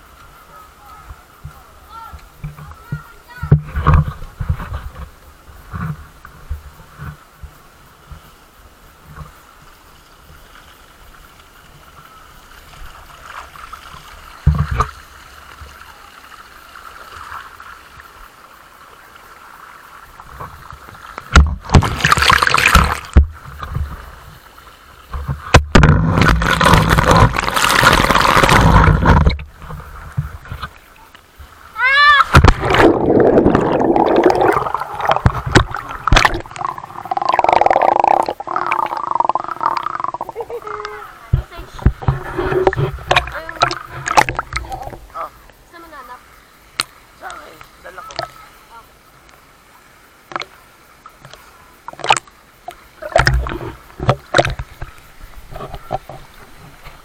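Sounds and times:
water rushing and splashing: 0.0s - 57.0s
muffled underwater gurgling: 32.4s - 45.4s.

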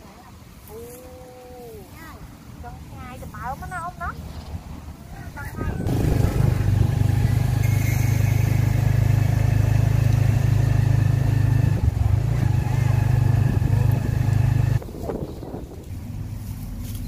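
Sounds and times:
engine running: 4.2s - 17.0s.

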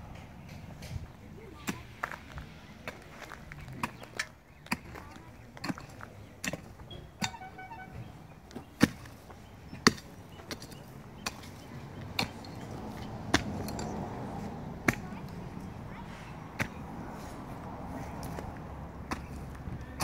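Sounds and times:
shovel chopping into roots and dirt: 3.6s - 7.5s, 8.5s - 14.1s, 14.8s - 15.4s, 18.1s - 20.0s.

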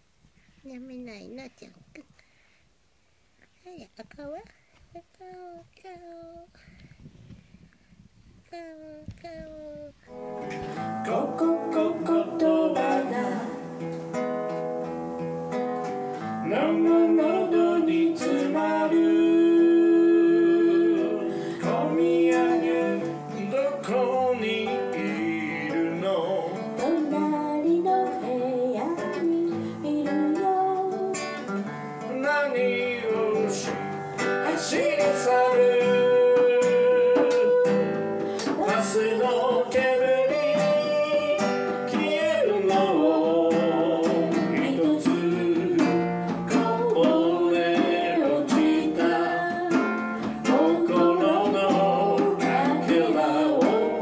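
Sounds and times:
acoustic guitar chords: 8.5s - 54.0s
man singing: 10.6s - 13.8s, 16.2s - 27.4s, 32.0s - 54.0s.

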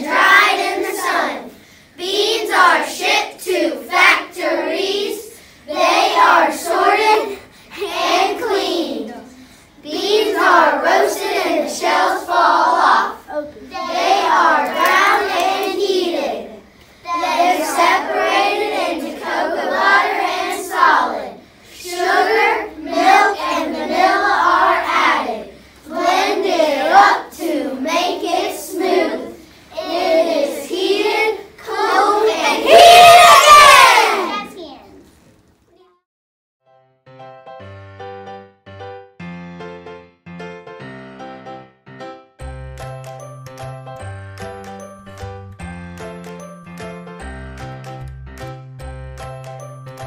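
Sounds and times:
children singing together: 0.0s - 34.5s.

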